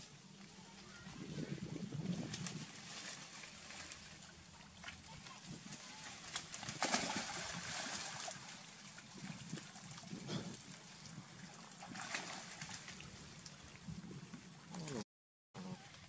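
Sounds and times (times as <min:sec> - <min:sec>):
rustling leaves and branches: 0:00.0 - 0:13.8
splashing water: 0:00.0 - 0:15.0.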